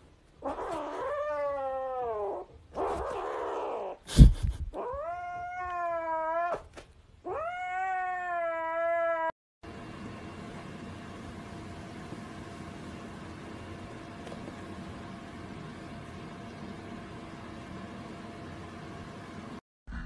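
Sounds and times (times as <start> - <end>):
kitten yowling meows: 0.4 - 4.0, 4.8 - 9.3.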